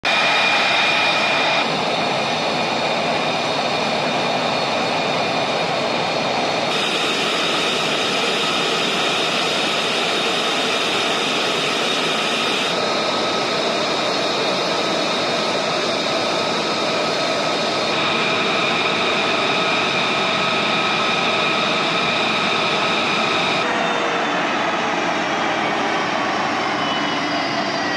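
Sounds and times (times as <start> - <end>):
high jet whines: 0.0 - 27.9
jet engines running: 0.0 - 27.9.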